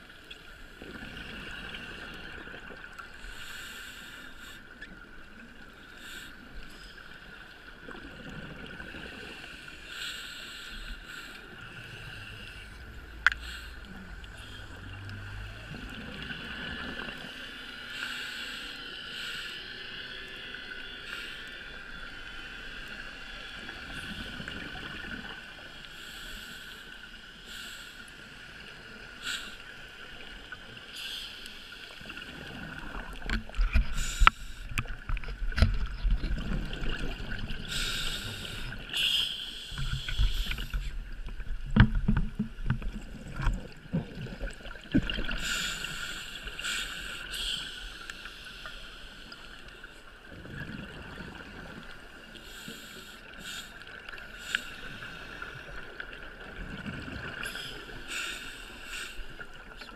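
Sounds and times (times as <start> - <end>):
steady hum: 10.0 - 17.1
exhaled bubbles underwater: 11.4 - 17.6, 32.0 - 39.0, 39.7 - 46.2, 50.3 - 52.4, 55.0 - 58.0.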